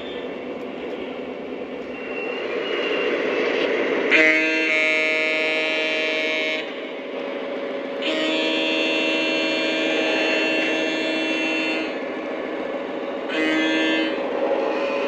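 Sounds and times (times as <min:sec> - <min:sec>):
model train running: 0:00.0 - 0:15.0
model train horn: 0:04.1 - 0:06.9, 0:08.0 - 0:12.2, 0:13.2 - 0:15.0.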